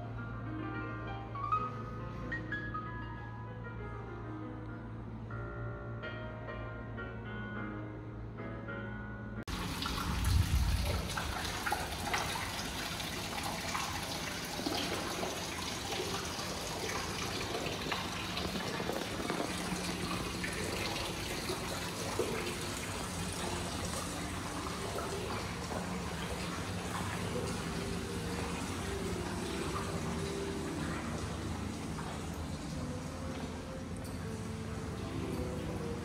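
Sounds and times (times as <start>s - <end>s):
water running and splashing: 9.5s - 36.0s.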